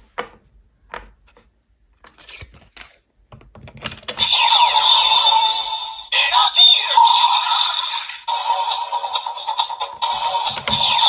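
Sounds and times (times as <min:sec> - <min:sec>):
toy belt electronic sound effect: 0:04.2 - 0:11.0.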